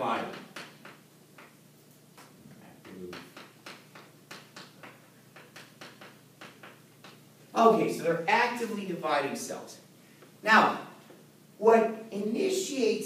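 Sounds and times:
chalk tapping on chalkboard: 0.2s - 1.6s, 2.2s - 7.2s.

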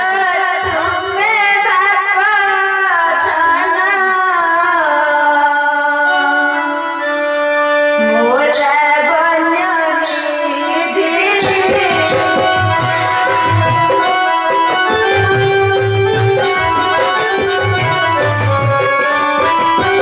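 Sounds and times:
sustained harmonium accompaniment: 0.0s - 20.0s
person singing long notes: 8.0s - 20.0s.

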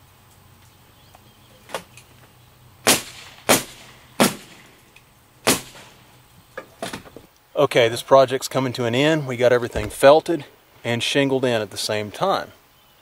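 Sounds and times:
nail gun firing into wood: 2.8s - 4.6s, 5.5s - 5.9s.

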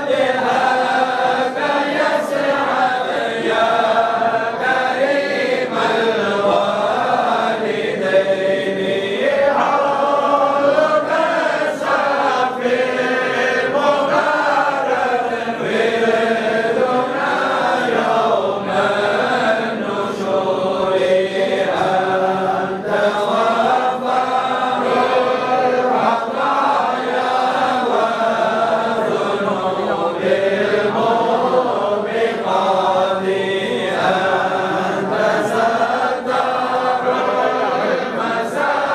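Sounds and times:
men chanting in unison: 0.0s - 38.9s.

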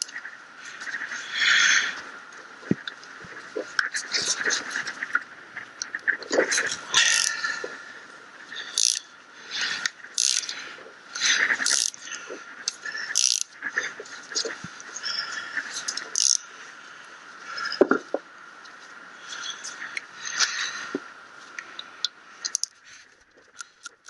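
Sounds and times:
ratchet wrench clicking: 7.0s - 7.3s, 8.7s - 9.1s, 10.2s - 10.5s, 11.2s - 12.0s, 12.7s - 13.5s, 15.9s - 16.4s.

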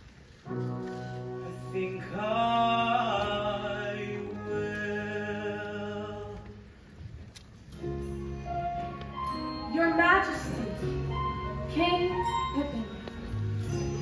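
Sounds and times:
man singing: 1.4s - 6.7s.

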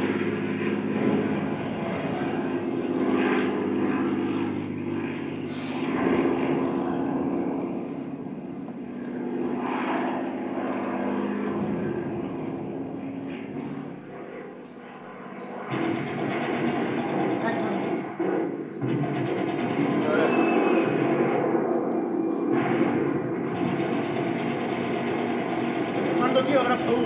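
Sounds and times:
propeller aircraft engines droning: 0.0s - 27.0s.

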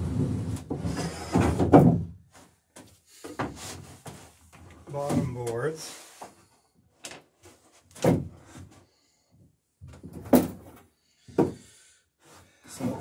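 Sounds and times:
wooden knocks and clunks: 0.7s - 2.2s, 7.9s - 8.7s, 9.8s - 11.7s.

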